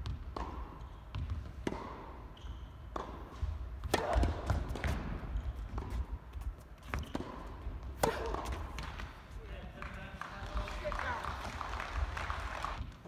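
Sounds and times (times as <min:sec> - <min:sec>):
tennis ball impacts: 0:00.0 - 0:09.3.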